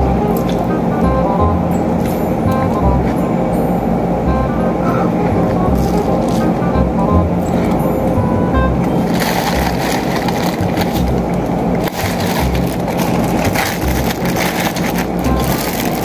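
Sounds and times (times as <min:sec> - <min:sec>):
background music with low beat: 0:00.0 - 0:16.0
plastic bag crinkling: 0:08.9 - 0:16.0.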